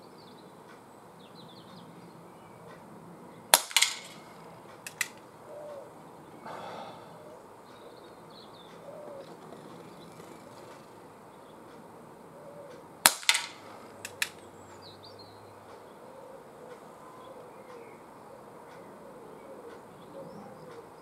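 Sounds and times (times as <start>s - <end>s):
pellet revolver shot: 3.5s - 5.2s, 13.0s - 14.4s
pellet hitting tin can: 3.6s - 4.2s, 13.1s - 14.3s.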